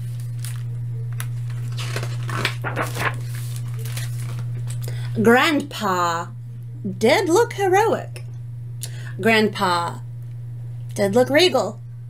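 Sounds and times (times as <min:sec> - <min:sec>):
book pages rustling: 0:00.0 - 0:04.8
low electrical hum: 0:00.0 - 0:12.0.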